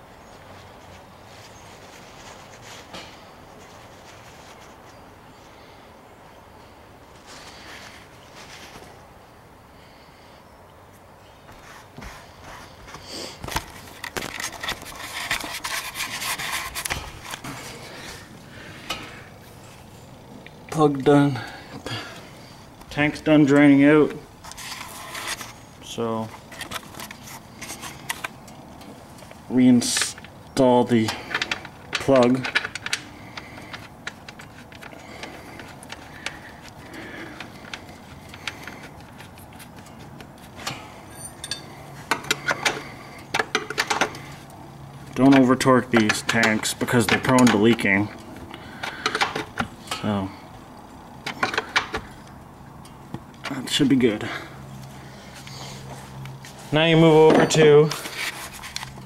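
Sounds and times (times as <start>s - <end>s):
rubbing and scratching handling noise: 0.3s - 5.8s, 7.1s - 9.1s, 11.4s - 50.4s, 53.1s - 59.0s
scattered clicks and knocks: 41.4s - 44.2s.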